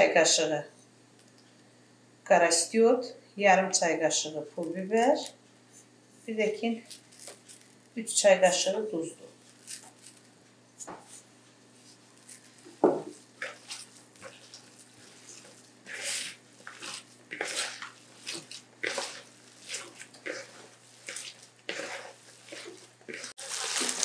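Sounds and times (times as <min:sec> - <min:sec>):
hands kneading wet meat: 0:11.8 - 0:24.0.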